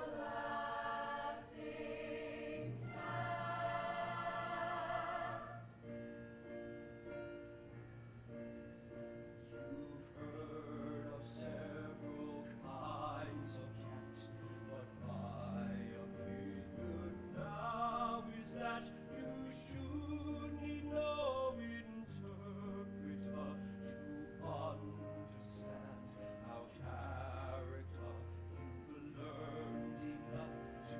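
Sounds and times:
man singing with vibrato: 9.6 - 30.9.

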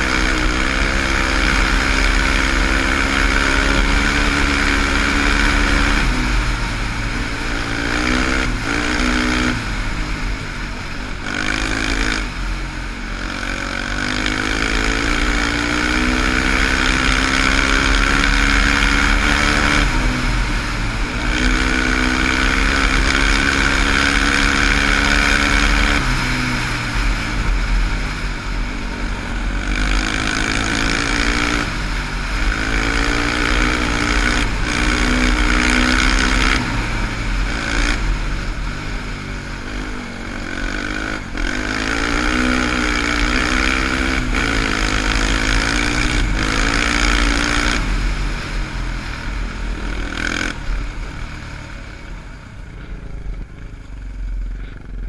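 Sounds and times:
quad engine revving: 0.0 - 55.0.

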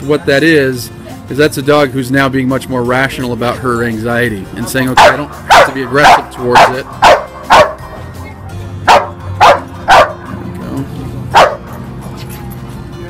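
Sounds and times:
large dog barking: 4.6 - 8.0, 8.8 - 10.3, 11.3 - 11.7.

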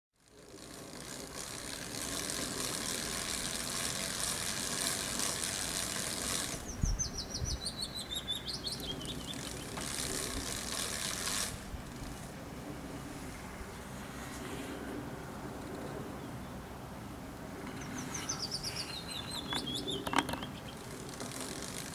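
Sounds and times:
steady high hiss: 0.2 - 21.9
bird chirping through speakers: 6.6 - 9.8, 17.8 - 20.8.

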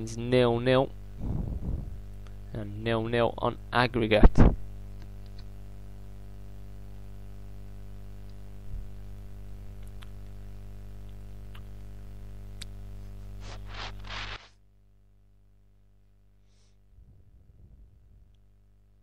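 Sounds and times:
low electrical hum: 0.0 - 19.0
brief rustle: 13.4 - 14.6.

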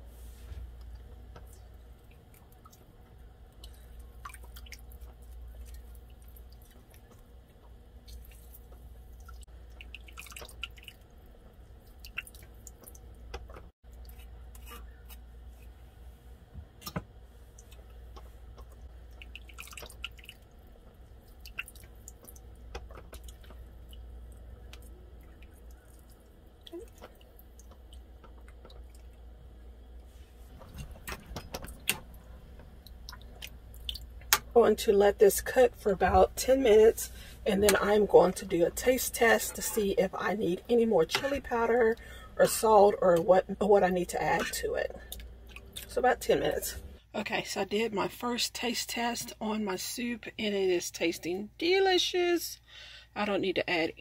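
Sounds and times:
steady low hum: 0.0 - 51.6
juice dripping into pot: 0.8 - 14.6, 17.5 - 35.6.

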